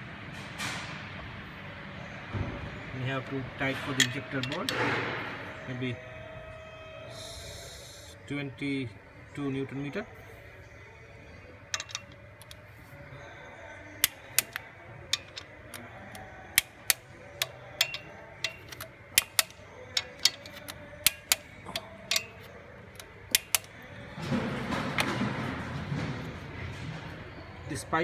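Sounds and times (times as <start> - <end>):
torque wrench clicking: 11.8 - 12.6, 14.0 - 15.8, 16.5 - 23.8.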